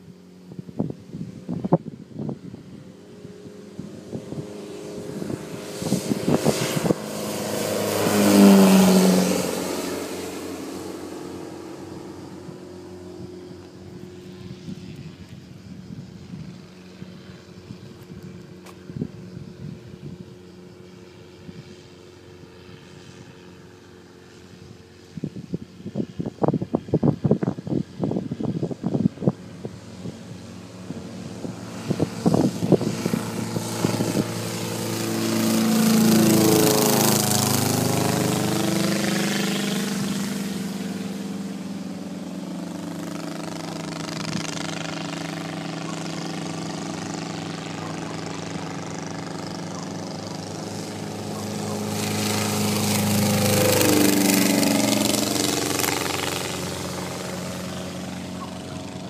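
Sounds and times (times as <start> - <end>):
wind buffeting microphone: 0.0 - 20.5, 24.9 - 41.4
propeller aircraft engine drone: 0.0 - 59.0.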